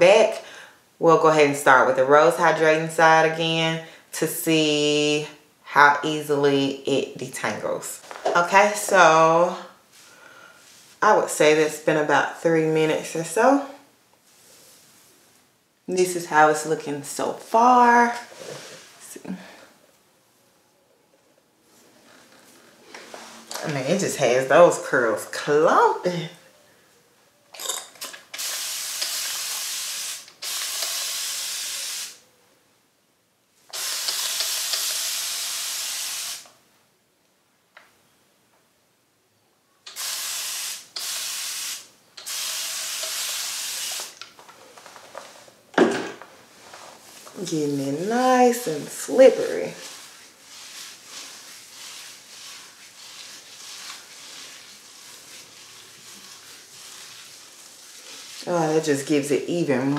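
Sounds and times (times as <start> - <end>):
spray bottle hissing: 28.4 - 32.2, 33.7 - 36.5, 39.9 - 44.2
wet rubbing hiss of hair: 28.4 - 32.2, 33.7 - 36.5, 40.0 - 44.2, 46.6 - 59.9.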